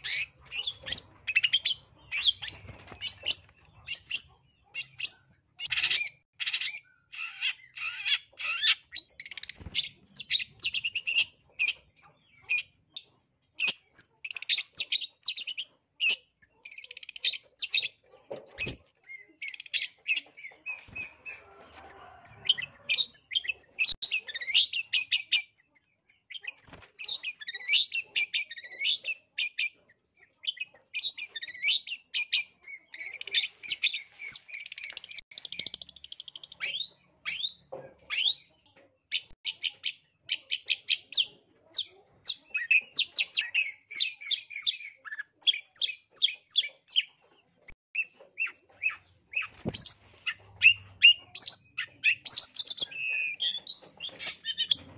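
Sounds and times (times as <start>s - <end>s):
bird singing chattering notes: 48.0s - 54.9s.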